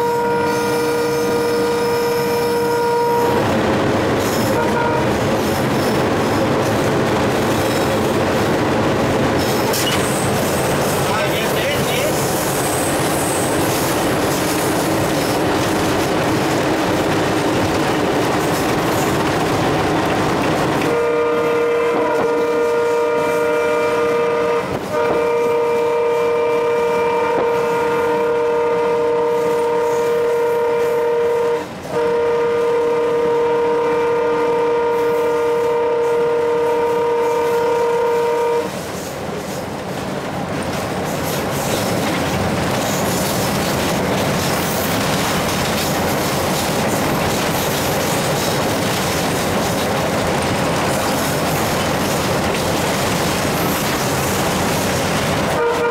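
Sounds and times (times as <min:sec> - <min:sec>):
locomotive horn blasts: 0:00.0 - 0:03.5, 0:04.5 - 0:05.2, 0:20.8 - 0:38.8, 0:55.5 - 0:55.9
locomotive wheels at speed: 0:05.2 - 0:21.0, 0:38.8 - 0:55.6.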